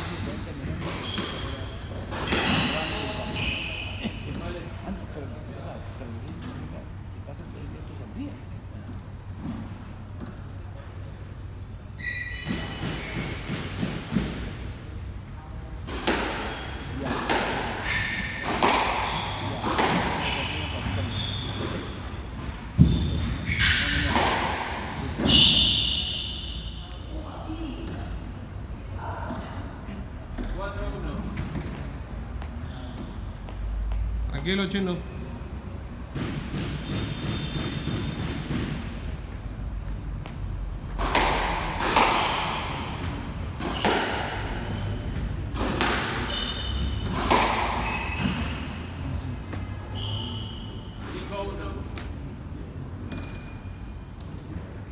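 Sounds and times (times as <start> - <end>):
sneakers squeaking on wooden floor: 0.0 - 4.7, 8.8 - 10.6, 11.9 - 14.0, 16.3 - 24.4, 25.0 - 27.2, 31.2 - 34.1, 36.6 - 38.6, 41.9 - 51.5, 52.9 - 54.5
squash ball thudding: 15.8 - 20.6, 36.1 - 39.0, 40.8 - 44.5, 45.2 - 48.5
shoes squeaking on wooden floor: 17.8 - 23.7, 32.3 - 34.1, 46.2 - 48.8, 49.4 - 51.2.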